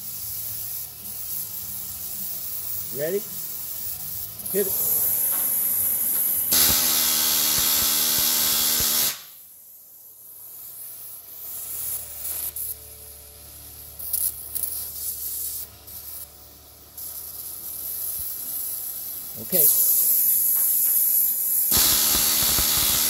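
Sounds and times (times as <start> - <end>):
torch hissing: 0.0 - 9.4, 10.4 - 23.0
pneumatic rivet hammer rattling: 4.7 - 9.2, 19.7 - 23.0.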